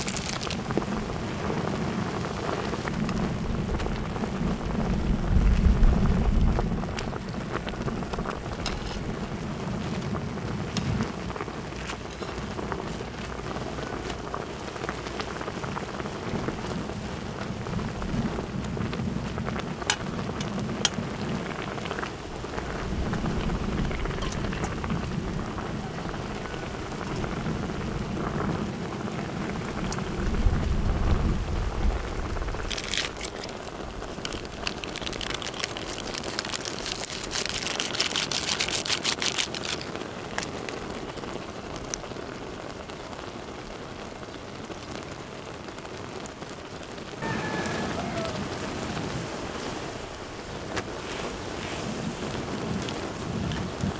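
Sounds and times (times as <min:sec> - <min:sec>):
low rumble: 0:02.6 - 0:11.4, 0:17.6 - 0:32.7
food sizzling in a pan: 0:47.2 - 0:48.4.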